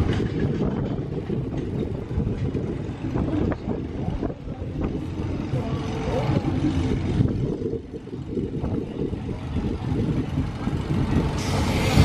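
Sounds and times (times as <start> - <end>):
roller coaster wheels rumbling: 0.0 - 12.0
wind hiss: 10.2 - 12.0.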